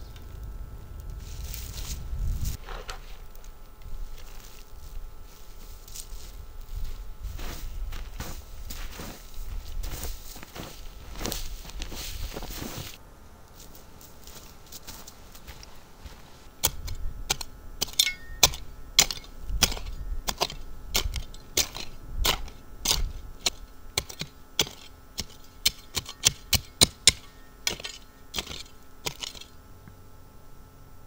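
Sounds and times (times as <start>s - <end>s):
shovel chopping and scraping dirt: 2.6s - 3.3s, 15.0s - 29.6s.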